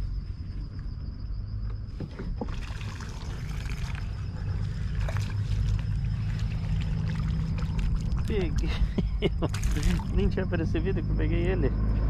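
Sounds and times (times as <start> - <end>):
steady low rumble: 0.0 - 12.0
fish splashing at water surface: 2.5 - 8.8, 9.5 - 10.2.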